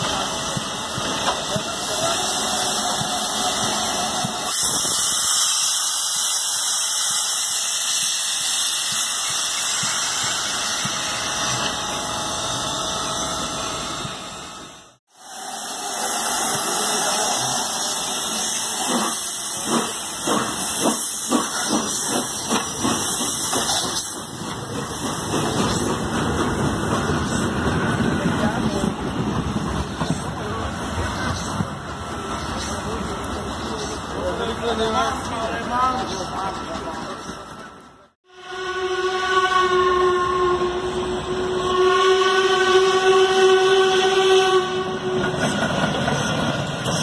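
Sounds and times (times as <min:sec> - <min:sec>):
steam hissing: 0:00.0 - 0:14.2, 0:15.0 - 0:35.4.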